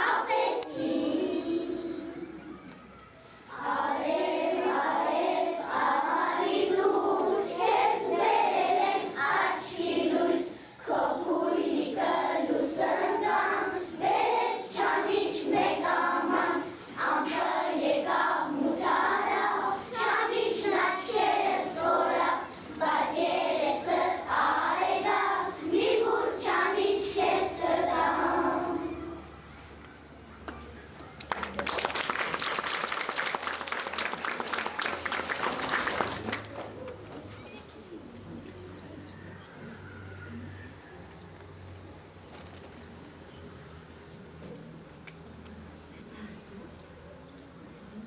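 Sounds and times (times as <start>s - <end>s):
young children singing: 0.0s - 2.8s, 3.5s - 29.4s.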